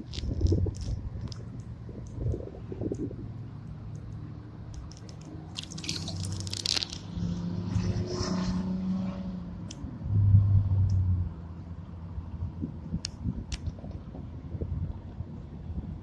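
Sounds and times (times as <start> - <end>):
water splashing and dripping: 4.7 - 7.5.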